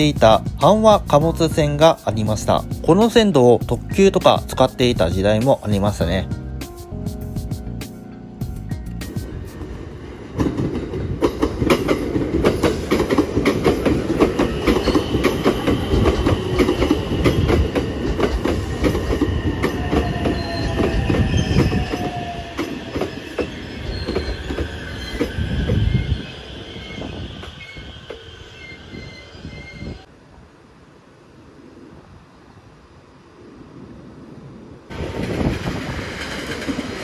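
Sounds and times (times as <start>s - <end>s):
train rumble: 0.0s - 37.0s
wheel clacks over rail joints: 10.4s - 20.1s.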